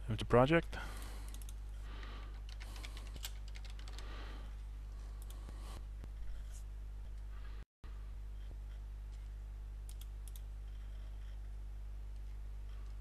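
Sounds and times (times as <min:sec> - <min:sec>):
steady low hum: 0:00.0 - 0:13.0
typing on computer keyboard: 0:02.3 - 0:04.1.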